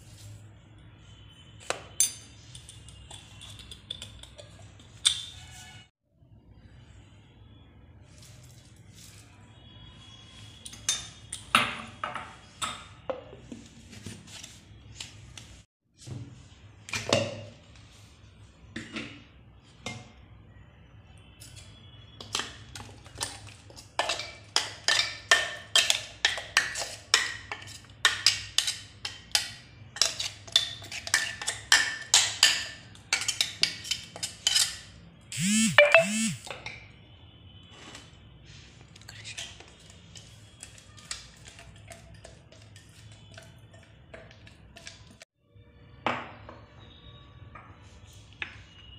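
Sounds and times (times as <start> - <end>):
metal spoon clinking in steel jar: 2.0 - 5.4.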